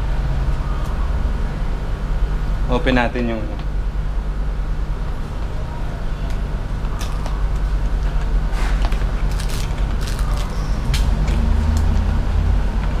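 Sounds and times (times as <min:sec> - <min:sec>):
steady low hum: 0:00.0 - 0:13.0
packaging rustling and clicking: 0:08.2 - 0:11.4.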